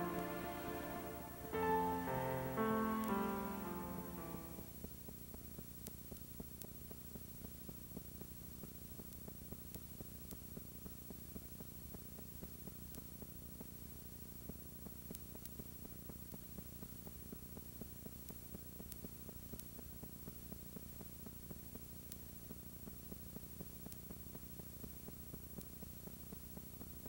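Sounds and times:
light hiss: 0.0s - 4.7s.

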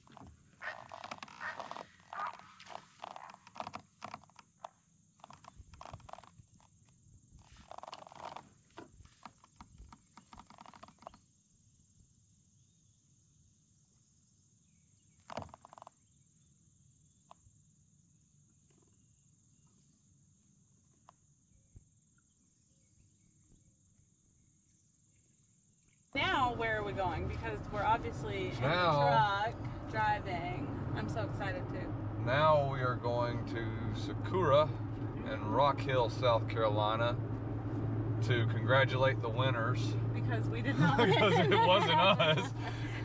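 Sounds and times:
animal calls: 0.6s - 3.4s.

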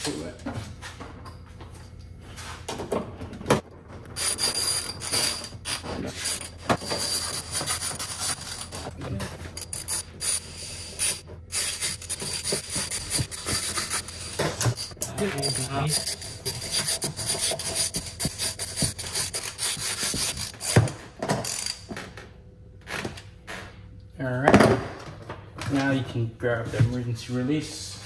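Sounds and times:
hand ratchet clicking: 9.5s - 20.8s.

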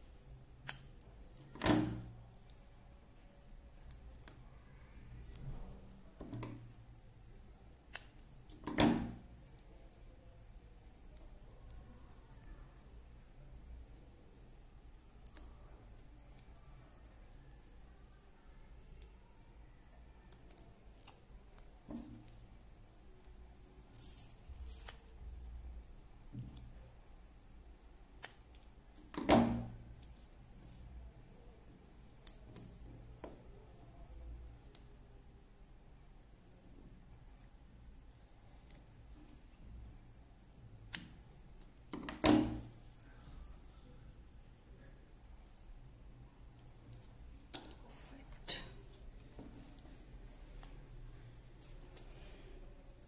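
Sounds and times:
tape and paper clicking: 0.6s - 2.6s, 7.8s - 9.7s, 20.3s - 22.4s, 24.0s - 25.6s, 28.2s - 30.2s.

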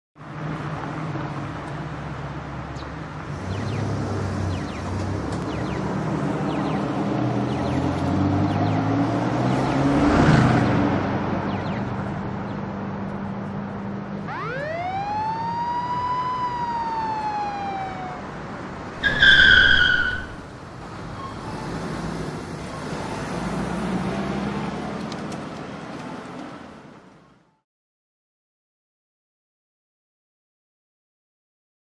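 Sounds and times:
car engines running: 0.2s - 27.1s
car passing by: 3.2s - 11.8s, 18.8s - 26.9s
police siren wail: 14.2s - 20.5s.

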